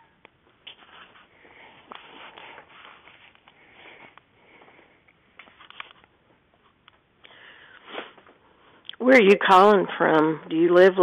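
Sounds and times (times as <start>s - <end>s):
rustling handling noise: 0.4s - 7.1s.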